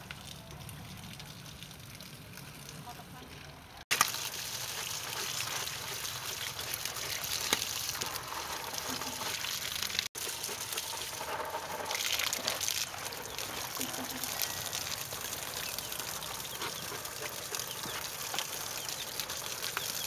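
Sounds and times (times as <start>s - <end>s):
tap water splashing: 3.9s - 11.1s, 16.6s - 20.0s.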